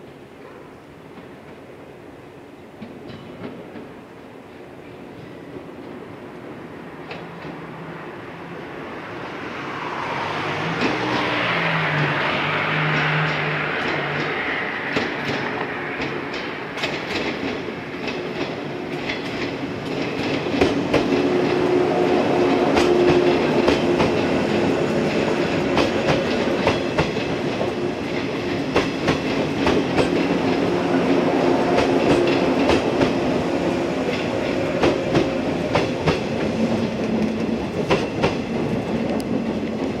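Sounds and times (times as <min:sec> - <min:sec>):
train rumble: 0:00.0 - 0:40.0
train wheels clacking over rail joints: 0:10.8 - 0:40.0.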